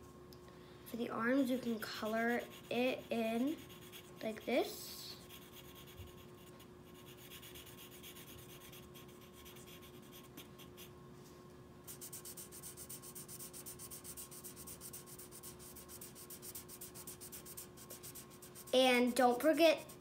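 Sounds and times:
marker scribbling on paper: 2.0 - 4.5, 5.2 - 10.9, 11.9 - 20.0.

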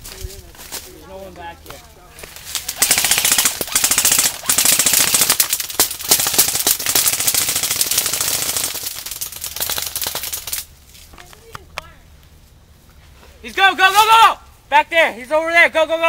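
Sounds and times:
airsoft guns firing full auto: 2.7 - 10.7.

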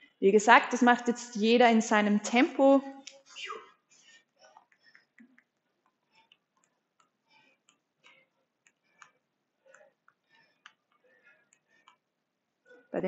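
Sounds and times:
faint light ticks and rustles: 3.9 - 12.9.

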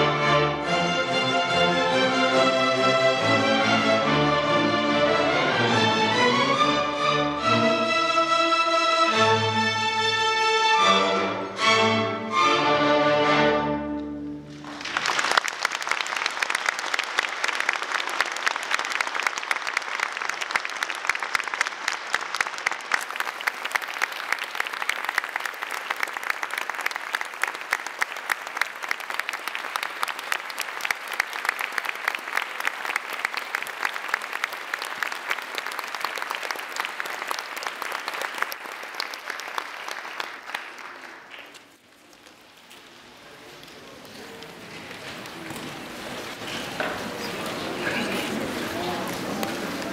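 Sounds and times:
string orchestra playing chords: 0.0 - 14.6
audience applauding: 14.5 - 49.9.

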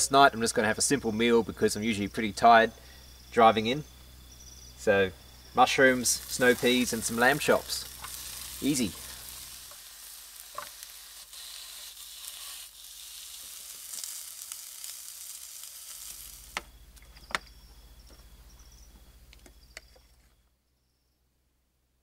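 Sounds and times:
food sizzling in frying pan: 5.6 - 16.6.

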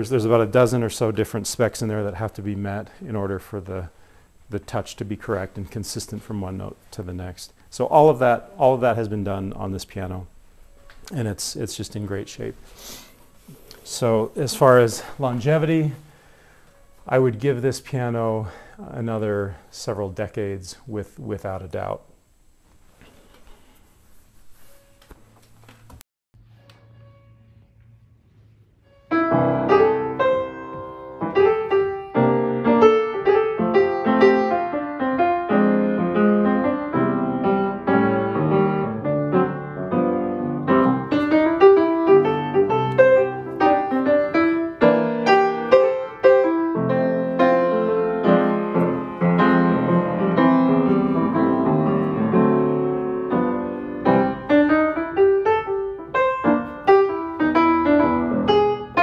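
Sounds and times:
piano playing: 26.7 - 59.0.

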